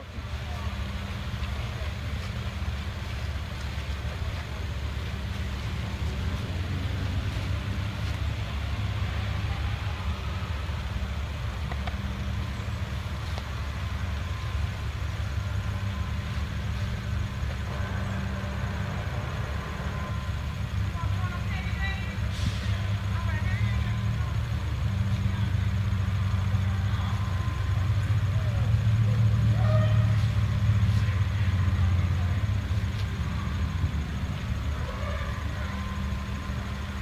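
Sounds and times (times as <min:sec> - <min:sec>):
hiss: 0:22.2 - 0:23.1.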